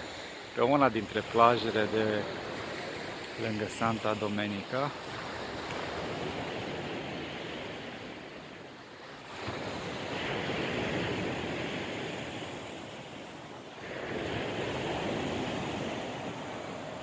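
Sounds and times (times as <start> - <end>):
waves breaking on shore: 0.0 - 17.0.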